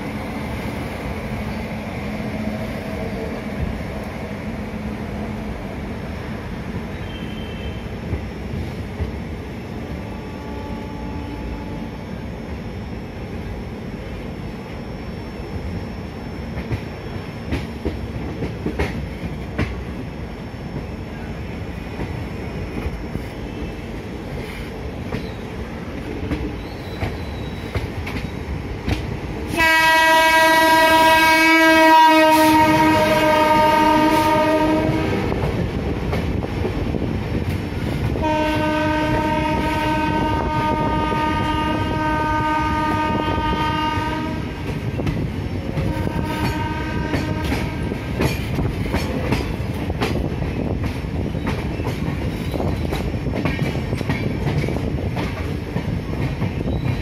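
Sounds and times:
moving train running noise: 0.0s - 57.0s
locomotive horn blasts: 10.2s - 11.9s, 29.5s - 35.3s, 38.2s - 44.6s, 45.8s - 47.9s
rail joints clicking: 16.5s - 20.0s, 21.9s - 29.7s, 32.6s - 39.9s, 44.6s - 57.0s.

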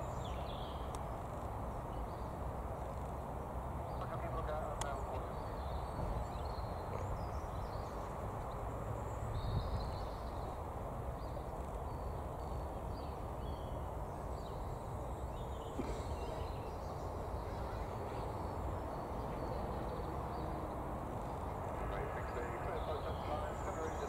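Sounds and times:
faint bird chirps: 11.2s - 20.5s.

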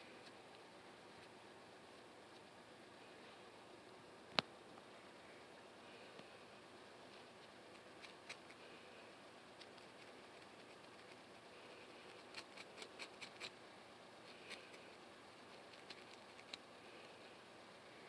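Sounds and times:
low hiss: 0.0s - 18.0s
comb scratching scalp: 9.6s - 13.6s, 14.2s - 16.7s.

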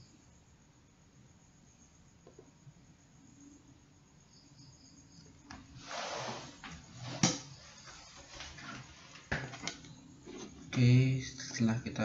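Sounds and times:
short rustle: 5.7s - 9.3s.

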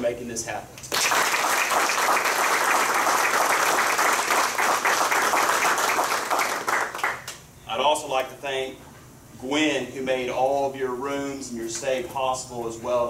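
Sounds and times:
audience applauding: 0.9s - 7.4s.

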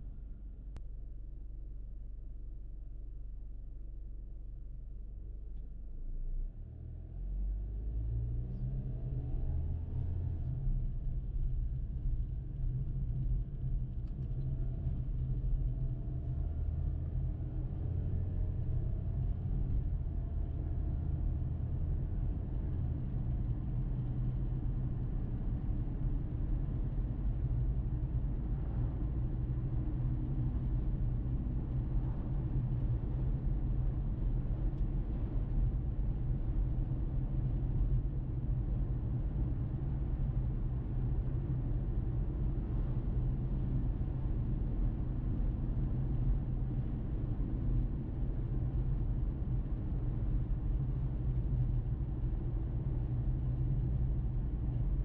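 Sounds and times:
car tyres and engine rumble: 0.0s - 55.0s.

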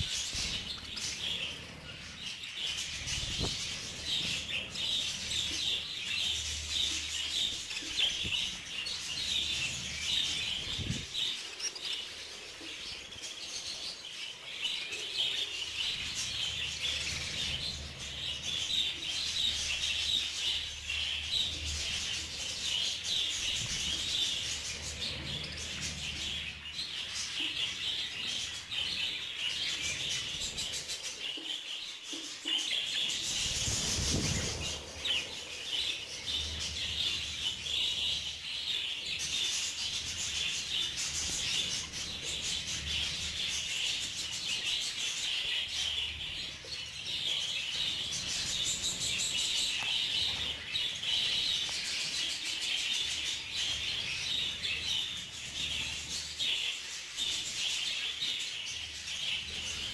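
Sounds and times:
budgerigars chattering and chirping: 14.4s - 59.9s.

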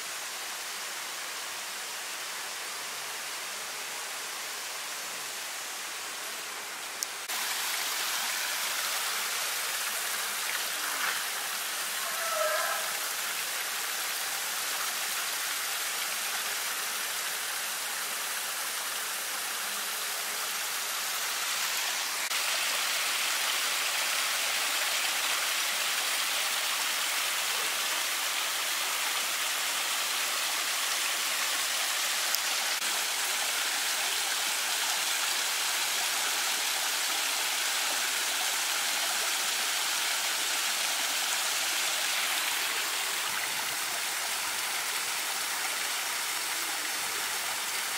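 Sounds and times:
waterfall splashing over rocks: 6.8s - 47.9s.

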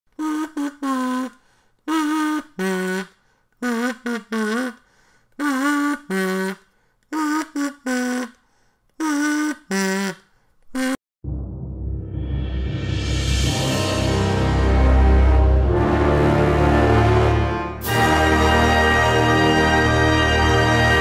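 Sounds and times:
person humming a tune: 0.1s - 1.4s.

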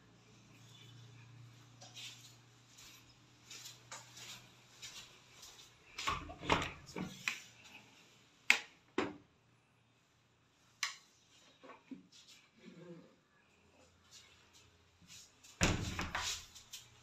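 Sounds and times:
soft footsteps: 0.5s - 8.0s.

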